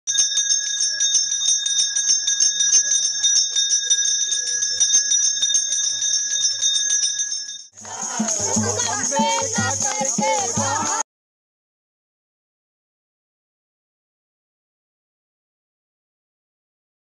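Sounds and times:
brass bell ringing rapidly: 0.1s - 11.0s.

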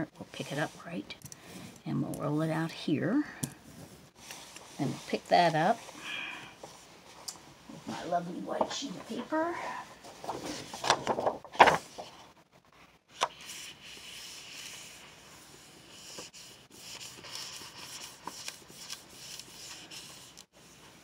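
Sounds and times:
palm rubbing on paper: 13.3s - 21.0s
paper crackling: 16.8s - 20.4s.

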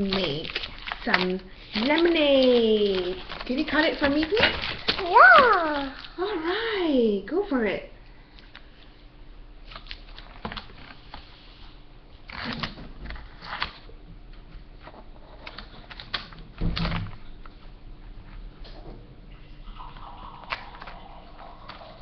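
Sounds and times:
plastic pouch crinkling: 0.0s - 6.1s.

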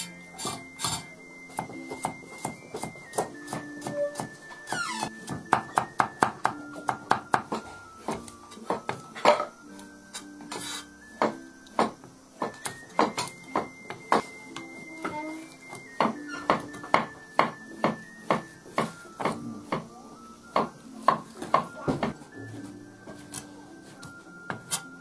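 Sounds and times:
background music: 0.0s - 25.0s
cleaver chopping on wooden block: 1.6s - 4.4s, 5.3s - 9.5s.

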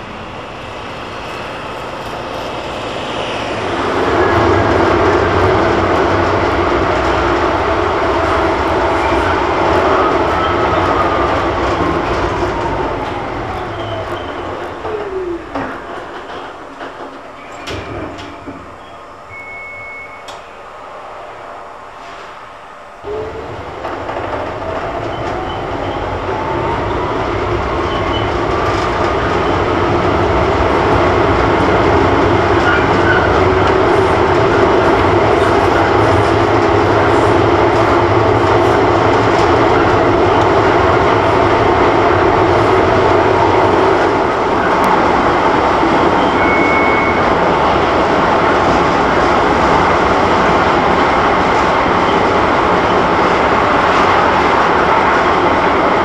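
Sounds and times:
tram wheels rumbling on rail: 0.0s - 56.0s.

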